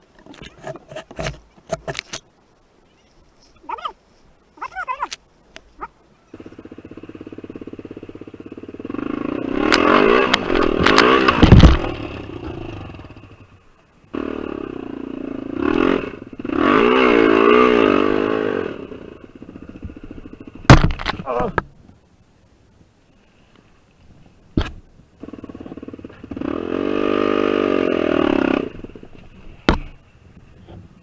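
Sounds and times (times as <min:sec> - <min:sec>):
dirt bike engine revving: 0:06.3 - 0:20.8, 0:25.2 - 0:29.1.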